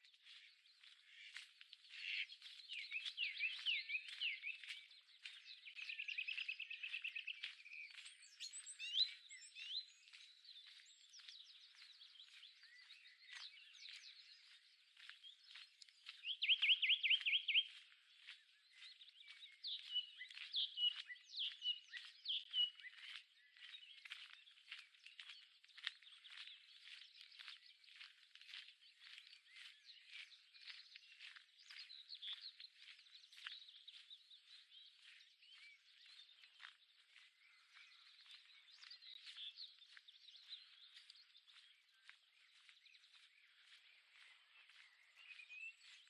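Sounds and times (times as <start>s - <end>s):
songbirds singing: 0.0s - 46.0s.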